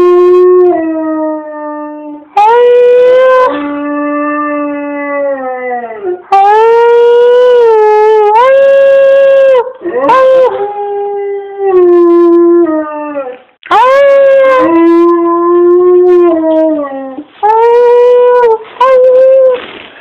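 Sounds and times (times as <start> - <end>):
dog howling: 0.0 - 19.6.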